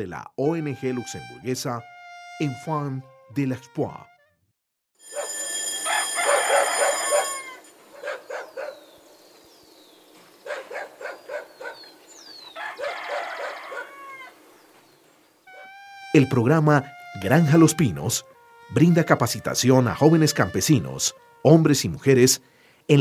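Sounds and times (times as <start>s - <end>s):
rooster crowing: 5.1s - 8.2s, 12.5s - 14.4s, 15.5s - 15.8s
farmyard fowl calling: 5.2s - 8.5s, 12.4s - 14.4s, 15.5s - 21.4s
small birds chirping: 7.9s - 13.9s.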